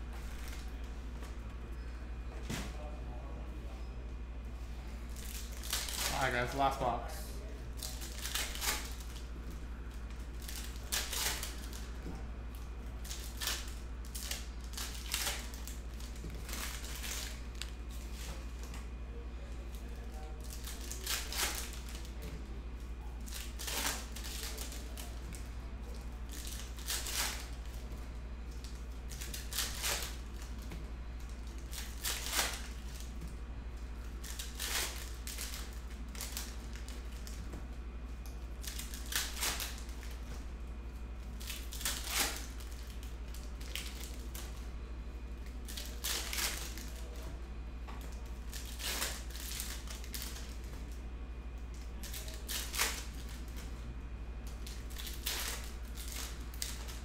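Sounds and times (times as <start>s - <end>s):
steady low hum: 0.0s - 57.0s
foil packs being torn open: 5.2s - 6.7s, 7.8s - 9.3s, 10.4s - 11.9s, 13.0s - 18.3s, 20.4s - 22.2s, 23.2s - 25.2s, 28.7s - 30.6s, 31.3s - 33.1s, 34.2s - 37.4s, 38.6s - 40.2s, 41.4s - 44.5s, 45.4s - 47.2s, 48.1s - 50.6s, 52.0s - 53.6s, 54.6s - 57.0s.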